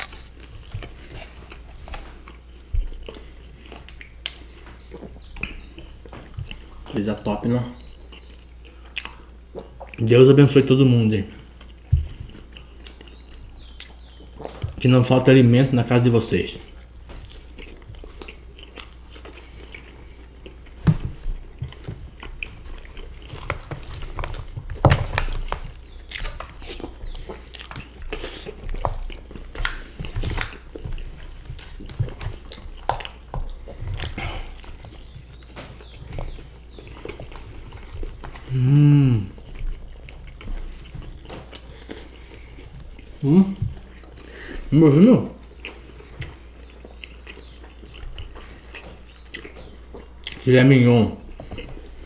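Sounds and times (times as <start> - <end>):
chewing and biting food: 0.0 - 52.0
person humming: 38.4 - 39.4, 43.2 - 43.6.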